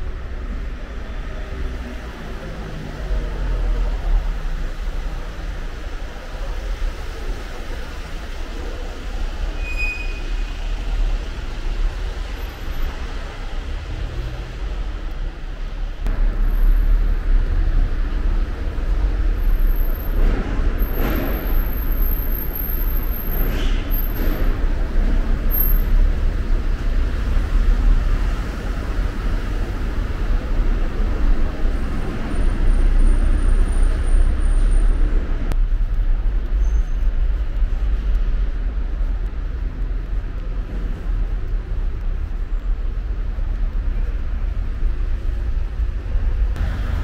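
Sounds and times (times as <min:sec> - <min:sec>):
car rumbling in parking garage: 0:16.0 - 0:35.9.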